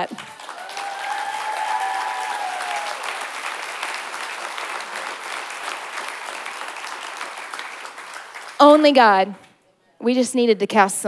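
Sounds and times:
congregation applauding: 0:00.0 - 0:08.6.

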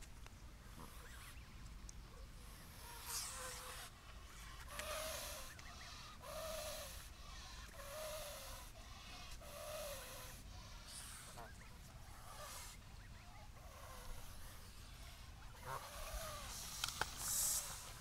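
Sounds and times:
goose hissing: 0:02.4 - 0:11.6, 0:12.2 - 0:12.8, 0:13.6 - 0:18.0.

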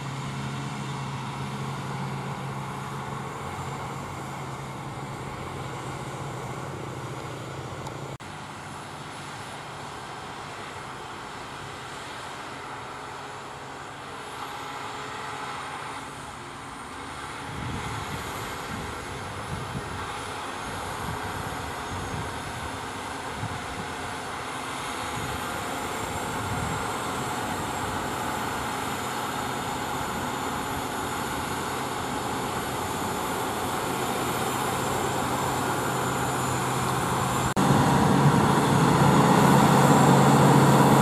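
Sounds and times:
tractor diesel engine under load: 0:00.0 - 0:41.0
cultivator discs working soil: 0:23.9 - 0:41.0.

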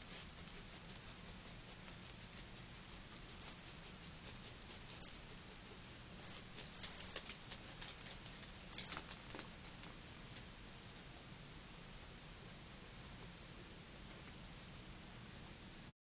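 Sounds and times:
faint steady hiss: 0:00.0 - 0:15.9.

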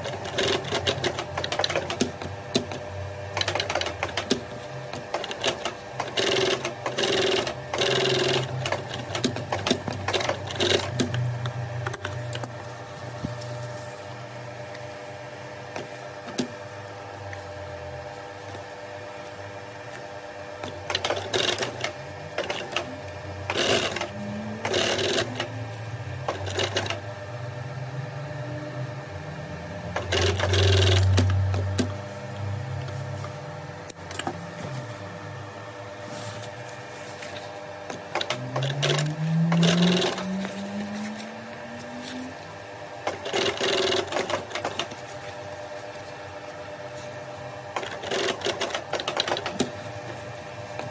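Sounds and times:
sewing machine low hum: 0:00.0 - 0:50.9
sewing machine needle clattering: 0:03.4 - 0:04.4, 0:20.9 - 0:22.9, 0:43.1 - 0:44.9, 0:47.8 - 0:49.7.

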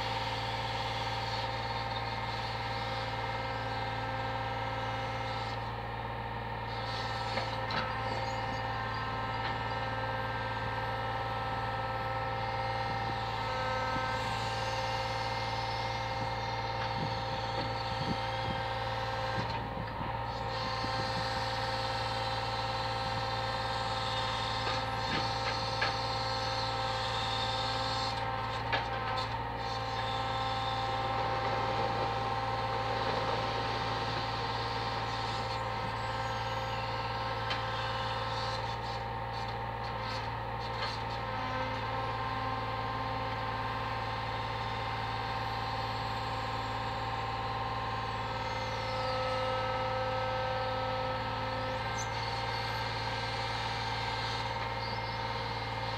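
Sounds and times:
hydraulic whine: 0:00.0 - 0:55.9.

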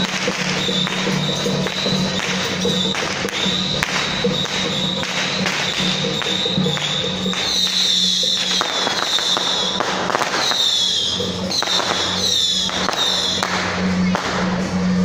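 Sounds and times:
firecrackers popping: 0:00.0 - 0:15.0
music: 0:00.0 - 0:15.0
falling whistling tones: 0:00.3 - 0:13.5.

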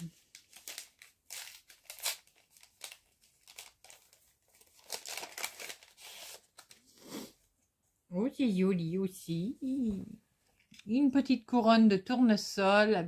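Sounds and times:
paper packaging crinkling: 0:00.0 - 0:06.9.

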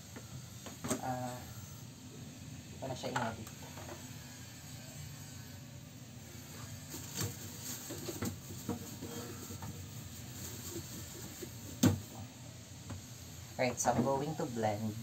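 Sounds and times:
small knocks and rustles: 0:06.8 - 0:12.1
fridge door thump shut: 0:11.8 - 0:12.0.

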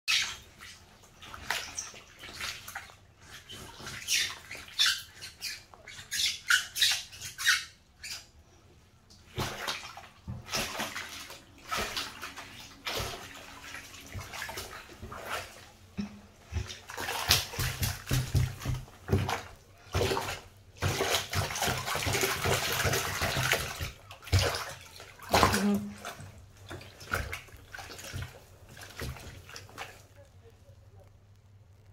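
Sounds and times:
wet rubber squeaks against bath: 0:00.1 - 0:15.6
bathwater sloshing and splashing: 0:00.1 - 0:31.9.

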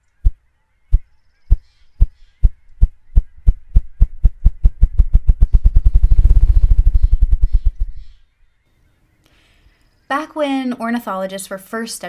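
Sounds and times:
grouse wings drumming: 0:01.0 - 0:07.9.

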